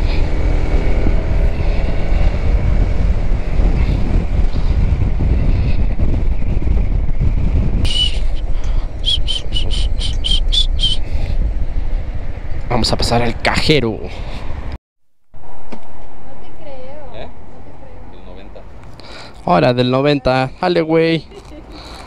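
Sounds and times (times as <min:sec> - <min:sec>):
road noise: 0:00.0 - 0:14.8, 0:15.4 - 0:22.0
wind rush: 0:00.0 - 0:14.8
short high pips: 0:07.9 - 0:11.1.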